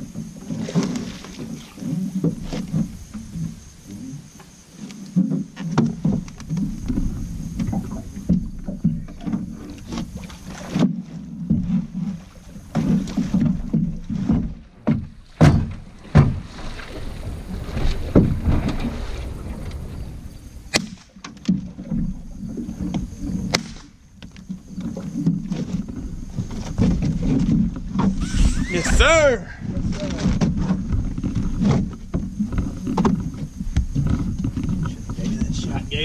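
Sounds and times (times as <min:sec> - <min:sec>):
water splashing beside boat: 0:00.0 - 0:36.0
knocks against boat hull: 0:12.7 - 0:16.6.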